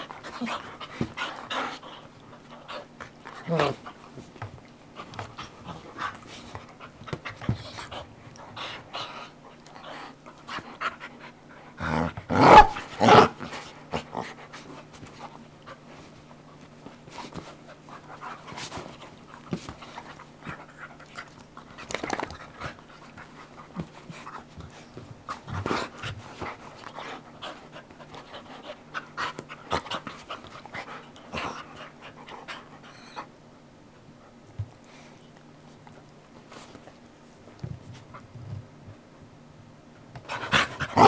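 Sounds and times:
dogs scuffling: 14.5s - 30.7s.

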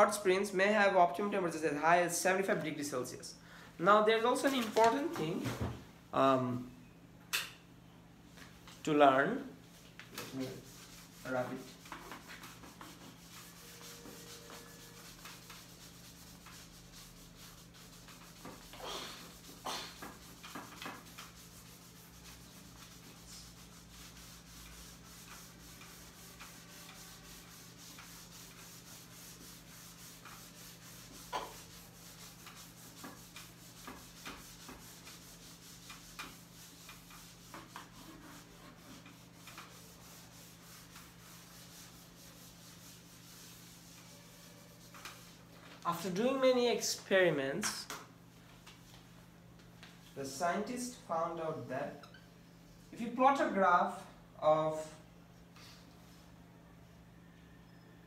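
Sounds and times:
whiteboard being wiped: 9.6s - 51.1s.

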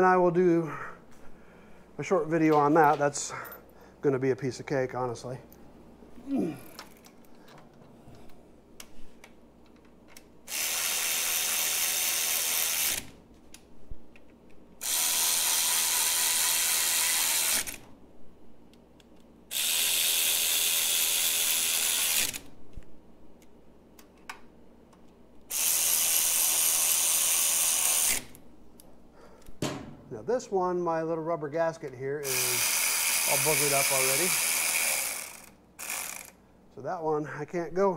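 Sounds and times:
electric ratchet running: 10.5s - 13.1s, 14.8s - 17.8s, 19.5s - 22.5s, 25.5s - 28.4s, 32.2s - 36.4s.

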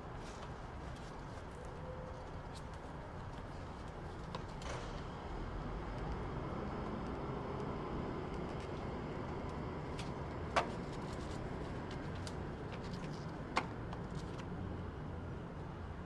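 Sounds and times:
banknotes rustling and crinkling: 8.3s - 14.6s.

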